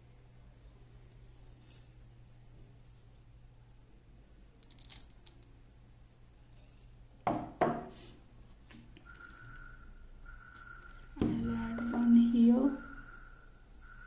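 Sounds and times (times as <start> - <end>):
faint steady high tone: 9.0 - 14.0.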